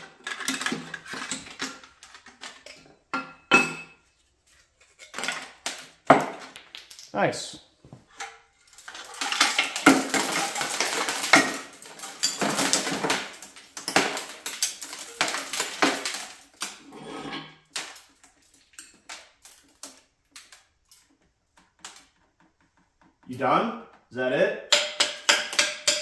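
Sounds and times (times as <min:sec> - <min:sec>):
metal fragments clattering out: 0:00.0 - 0:02.8, 0:08.6 - 0:20.0.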